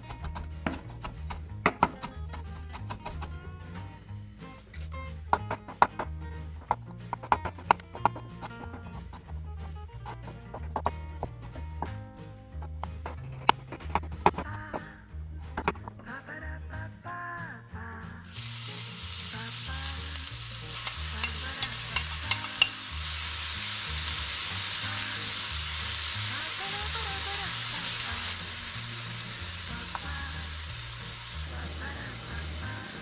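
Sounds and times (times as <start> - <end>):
vegetables sizzling in oil: 18.2 - 33.0.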